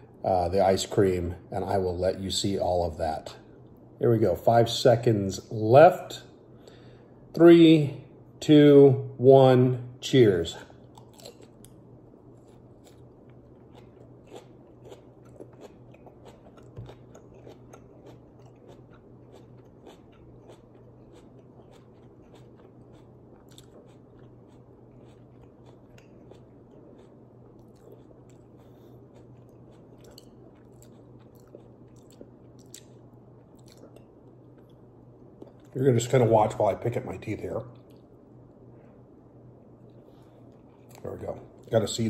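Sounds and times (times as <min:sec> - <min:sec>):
person chewing pepper crunchily: 0:10.8 - 0:35.8.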